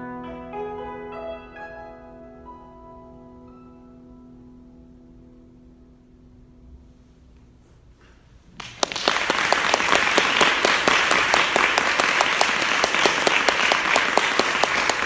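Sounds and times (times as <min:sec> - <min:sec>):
audience applause: 0:08.6 - 0:15.0.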